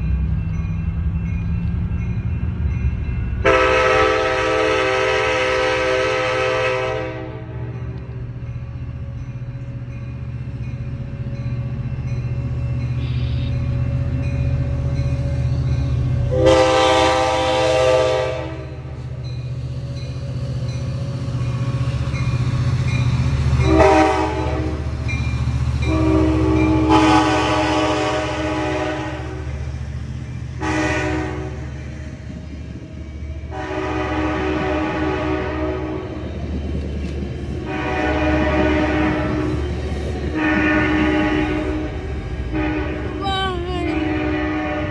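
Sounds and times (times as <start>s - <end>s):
train horn blasts: 3.4s - 7.9s, 16.2s - 19.0s, 23.6s - 24.9s, 25.8s - 29.6s, 30.6s - 31.8s, 33.5s - 36.2s, 37.6s - 39.6s, 40.3s - 44.9s.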